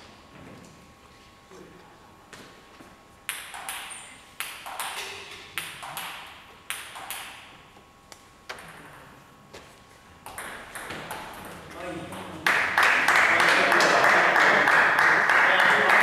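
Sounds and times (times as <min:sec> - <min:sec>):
table tennis ball clicking: 0:03.3 - 0:07.4.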